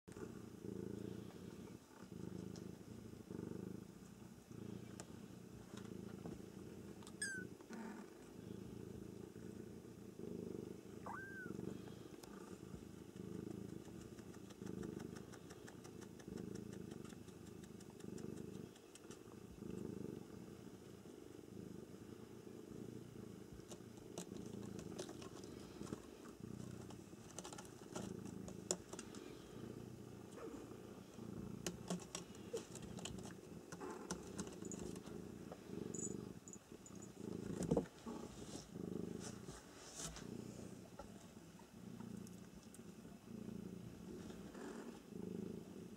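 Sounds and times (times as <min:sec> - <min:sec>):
cat purring: 0:00.0 - 0:45.9
small clicks and scratches: 0:12.2 - 0:19.4, 0:23.5 - 0:29.5, 0:31.6 - 0:38.0.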